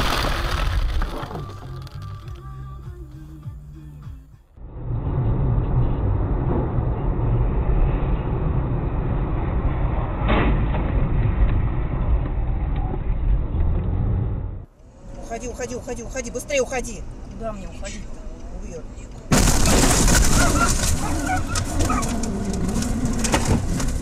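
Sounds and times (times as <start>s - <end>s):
road and engine rumble: 0.0s - 24.0s
car crashing into barrier: 19.3s - 22.2s.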